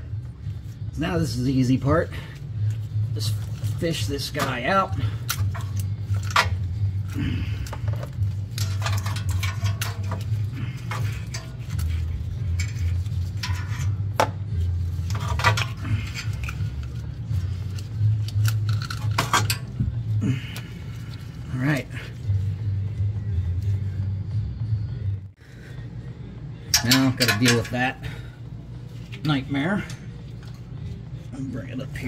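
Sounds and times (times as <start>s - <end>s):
steady low hum: 0.0s - 32.0s
wires and connectors clattering: 2.7s - 21.4s, 26.7s - 28.0s.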